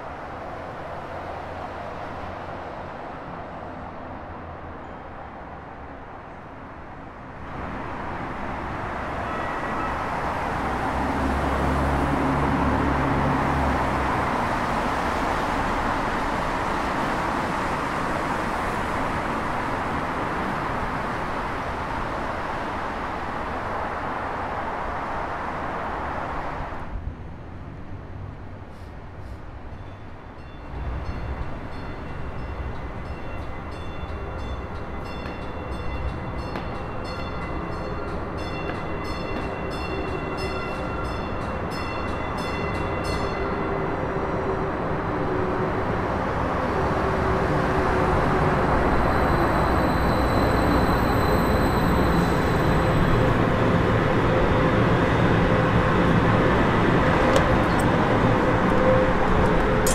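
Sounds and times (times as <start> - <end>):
train running noise: 0.0 - 59.9
train bell ringing: 29.8 - 44.0.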